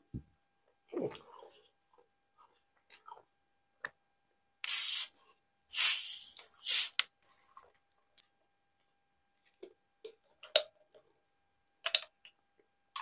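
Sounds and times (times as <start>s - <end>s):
carbonation hissing: 4.6s - 5.1s, 5.7s - 7.0s.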